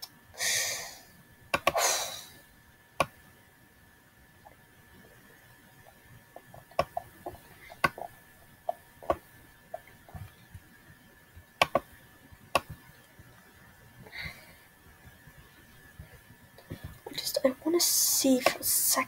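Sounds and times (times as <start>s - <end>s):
faint high-pitched whine: 0.0s - 19.0s
computer mouse and keyboard clicking: 1.5s - 1.8s, 5.8s - 10.6s, 11.6s - 11.9s, 12.5s - 13.1s.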